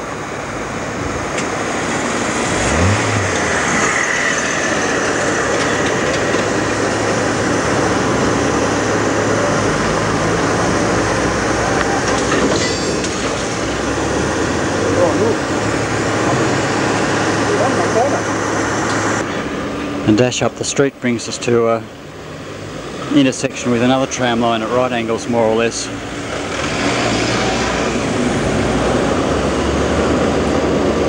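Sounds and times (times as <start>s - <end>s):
tram motor hum: 0.0s - 21.0s
tram wheels on rails: 0.0s - 31.0s.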